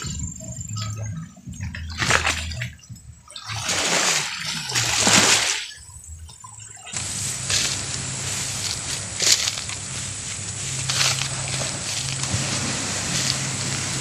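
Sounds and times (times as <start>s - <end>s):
waves washing on pebbles: 7.0s - 14.0s.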